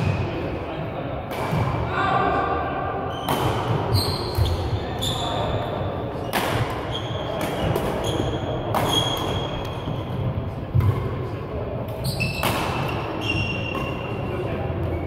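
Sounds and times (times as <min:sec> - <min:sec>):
hall echo: 0:00.0 - 0:07.3
racket hitting shuttlecock: 0:03.2 - 0:04.6, 0:06.2 - 0:09.9, 0:10.7 - 0:11.2, 0:12.3 - 0:14.2.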